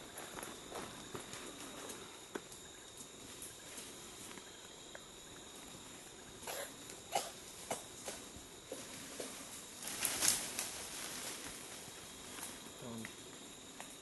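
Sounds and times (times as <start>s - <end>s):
animals rustling in dry leaves: 7.5s - 13.8s.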